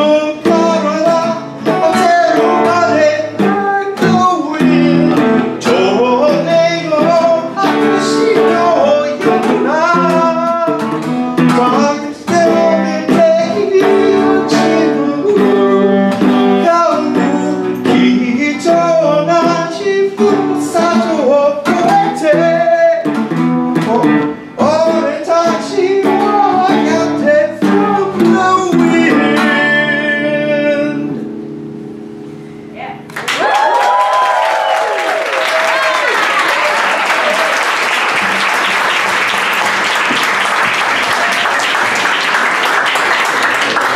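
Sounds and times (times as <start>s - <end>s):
man singing: 0.0s - 31.4s
acoustic guitar: 0.0s - 33.3s, 35.7s - 43.9s
electric guitar: 0.0s - 34.9s.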